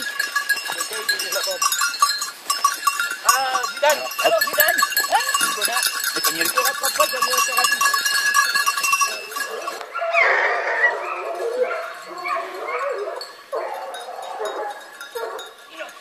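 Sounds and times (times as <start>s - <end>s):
dog bells jingling: 0.0s - 10.1s, 10.9s - 16.0s
hounds baying: 9.0s - 15.7s.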